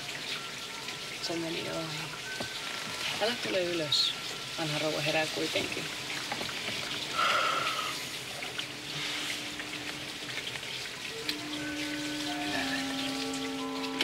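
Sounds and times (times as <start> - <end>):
soft music of long held notes: 0.0 - 7.4, 8.0 - 14.0
rain hissing: 0.0 - 14.0.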